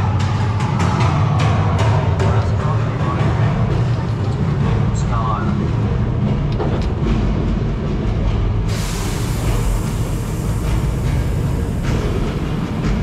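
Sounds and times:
music: 0:00.0 - 0:13.0
tram rolling with low rumble: 0:00.0 - 0:13.0
loud steady hiss: 0:08.7 - 0:13.0.

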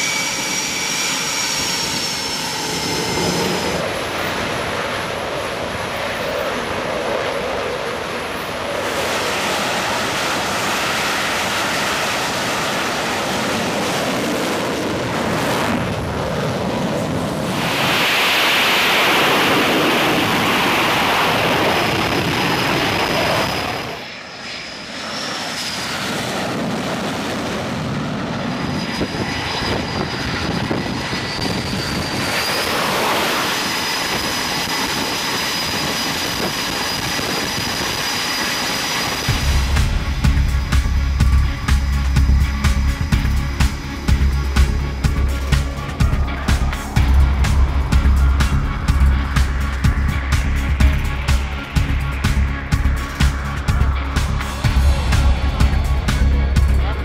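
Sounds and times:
jet engines roaring: 0:00.0 - 0:57.0.

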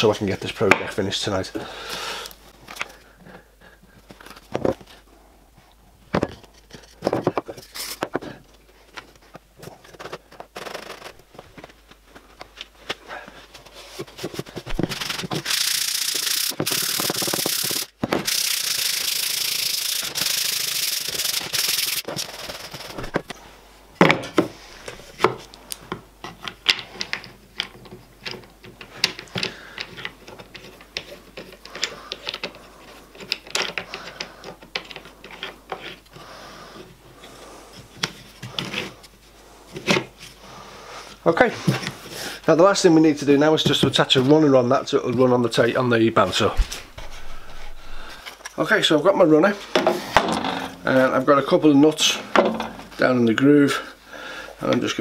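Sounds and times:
loud steady hiss: 0:15.0 - 0:23.0
wood parts knocking on workbench: 0:49.7 - 0:50.9, 0:52.2 - 0:52.9.

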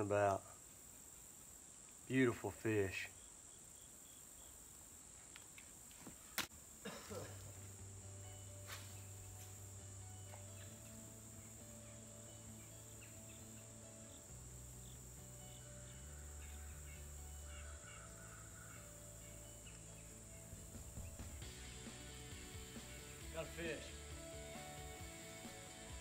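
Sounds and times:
quiet music of low held notes: 0:00.0 - 0:26.0
high-pitched insect drone: 0:07.6 - 0:26.0.

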